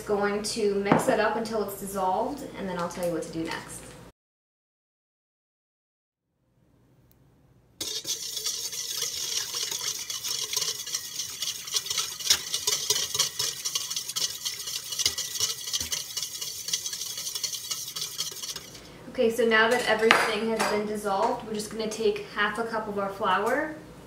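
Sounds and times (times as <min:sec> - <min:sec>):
whisk scraping a metal bowl: 0:07.8 - 0:18.9.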